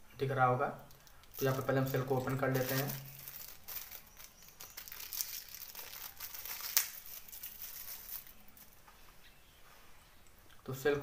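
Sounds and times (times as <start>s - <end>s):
plastic packaging crinkling and tearing: 0.9s - 8.8s.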